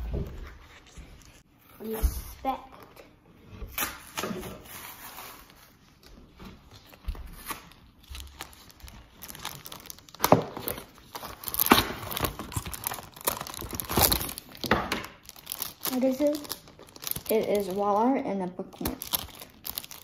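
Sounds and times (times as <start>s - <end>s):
plastic sleeve crinkling: 4.6s - 20.0s.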